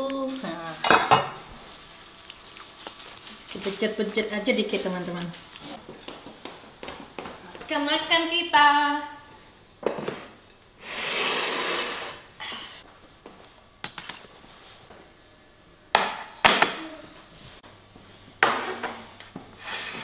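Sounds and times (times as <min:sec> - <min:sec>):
dish sliding on table: 0:10.0 - 0:12.3
dishes knocking on table: 0:16.0 - 0:16.8.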